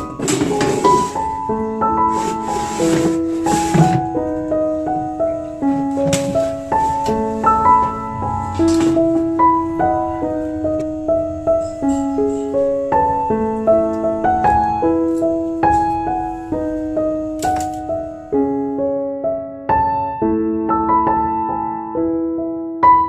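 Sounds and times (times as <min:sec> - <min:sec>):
gentle piano music: 0:00.0 - 0:23.0.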